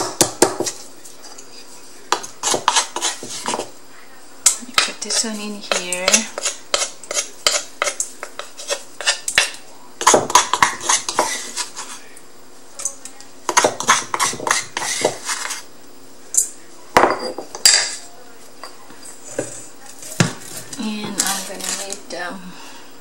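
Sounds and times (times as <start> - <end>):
spatula scraping metal bowl: 2.4 - 3.7, 4.8 - 9.4, 10.0 - 12.0, 13.5 - 15.7
stone pestle knocking in mortar: 9.4 - 11.4.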